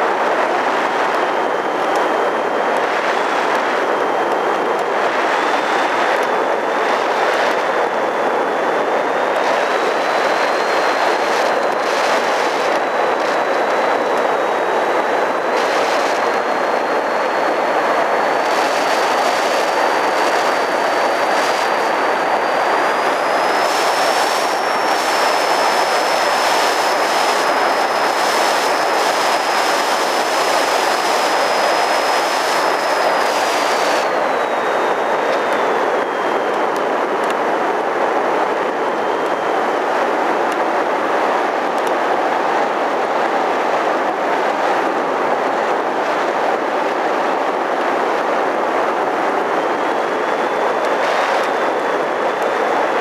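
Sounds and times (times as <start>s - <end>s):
rush of air: 0.0s - 40.2s, 44.5s - 53.0s
high motor whine: 0.0s - 43.1s, 47.2s - 53.0s.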